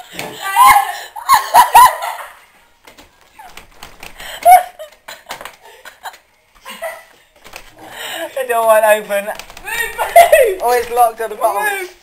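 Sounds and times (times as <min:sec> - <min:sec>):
hurried footsteps: 0:02.7 - 0:08.0, 0:08.7 - 0:12.0.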